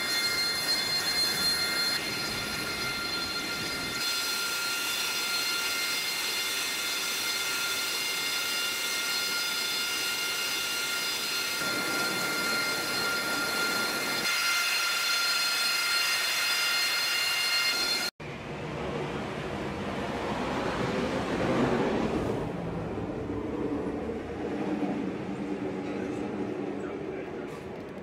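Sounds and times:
jet engines whining: 0:00.0 - 0:28.0.

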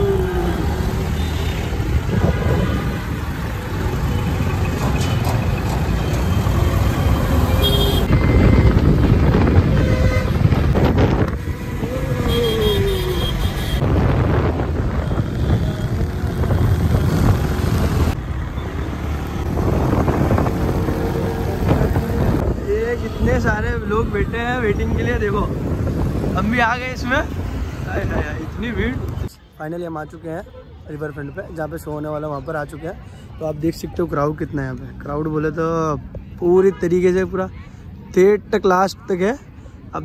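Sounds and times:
vehicle passing by: 0:00.0 - 0:22.7
traffic engine rumble: 0:00.0 - 0:40.0
wind on microphone: 0:01.9 - 0:03.2, 0:08.1 - 0:18.2, 0:19.3 - 0:26.5
vehicle horn toots: 0:07.6 - 0:09.0, 0:09.6 - 0:10.6.

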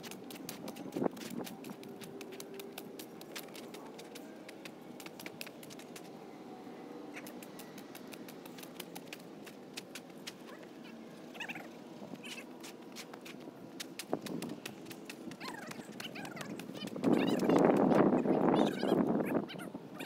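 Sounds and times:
sharp clicks and ticks: 0:00.0 - 0:06.1, 0:07.1 - 0:10.4, 0:13.0 - 0:18.1.

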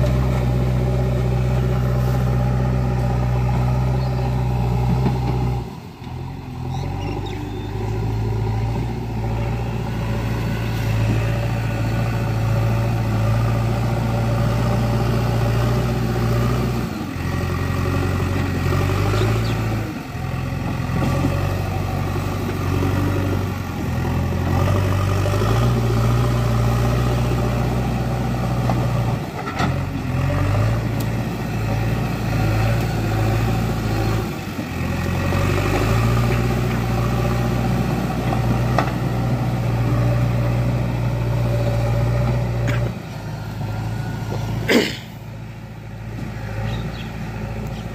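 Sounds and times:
diesel engine under load: 0:00.0 - 0:47.9.

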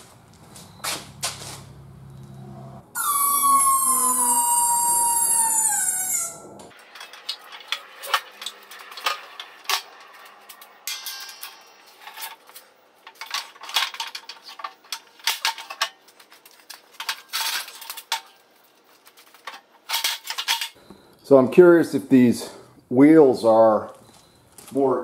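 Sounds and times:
sharp metal knocks and clinks: 0:10.9 - 0:12.3.

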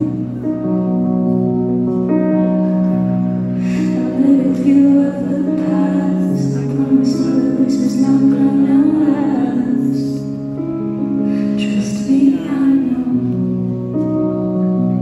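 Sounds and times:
sustained backing chords: 0:00.0 - 0:15.0
woman singing into microphone: 0:03.6 - 0:10.4, 0:11.2 - 0:13.7.

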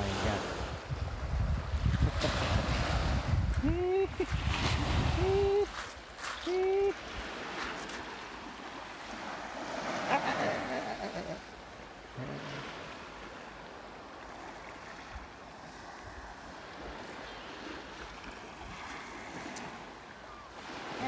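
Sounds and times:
wind bumps on microphone: 0:00.0 - 0:05.9
distant surf: 0:00.0 - 0:21.0
wind: 0:00.0 - 0:21.0.

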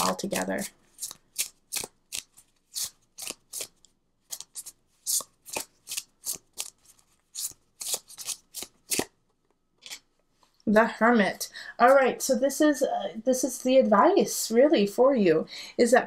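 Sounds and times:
cards being shuffled: 0:00.4 - 0:09.2.

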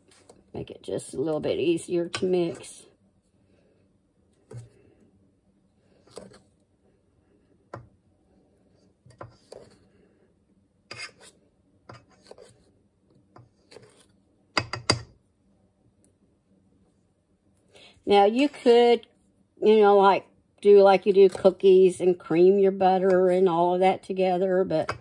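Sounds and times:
knife chopping butter in a steel bowl: 0:10.9 - 0:12.6, 0:13.3 - 0:15.2.

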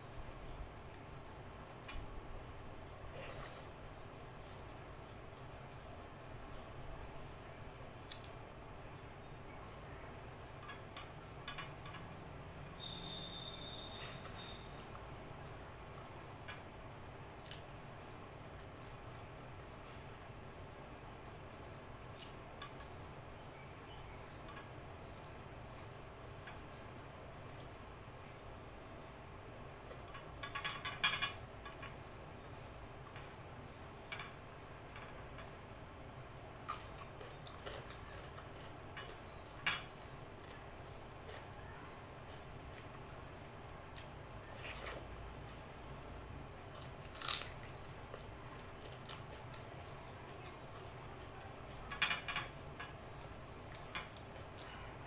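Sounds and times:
faint low hum: 0:00.0 - 0:55.0.

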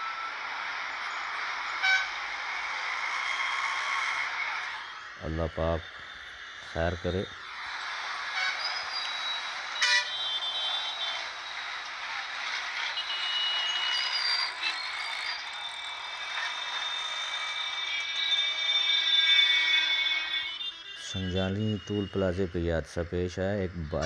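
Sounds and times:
trucks running: 0:00.0 - 0:24.0.

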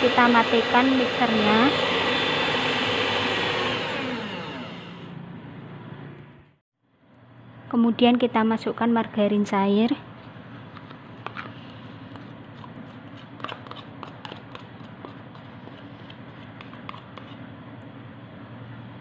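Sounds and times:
spoon scraping plastic cup: 0:10.6 - 0:17.5.

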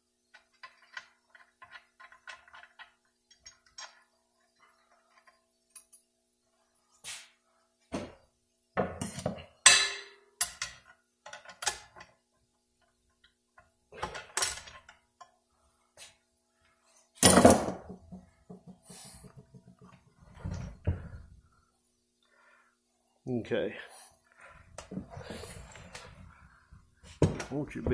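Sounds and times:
metal parts clinking and knocking: 0:00.2 - 0:06.0.

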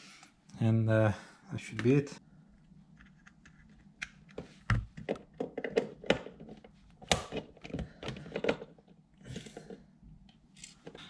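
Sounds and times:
plastic parts clicking and knocking: 0:03.0 - 0:09.8.

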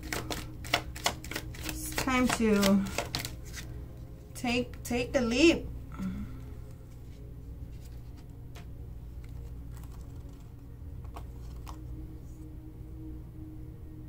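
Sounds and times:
cards clicking and tapping on table: 0:00.0 - 0:03.6
steady low hum: 0:00.0 - 0:14.0.

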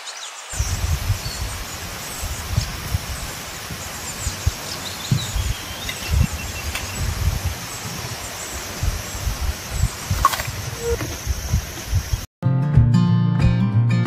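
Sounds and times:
steady hiss: 0:00.1 - 0:12.3
wind buffeting microphone: 0:00.6 - 0:12.3
faint high bird chirps: 0:03.8 - 0:12.2.

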